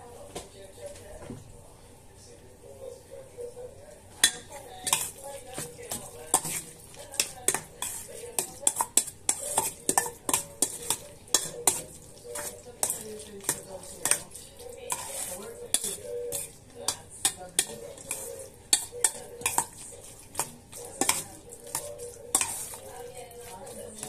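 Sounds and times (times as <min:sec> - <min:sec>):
spoon squelching through food: 0:04.0 - 0:24.0
spoon clinking on metal bowl: 0:04.2 - 0:24.0.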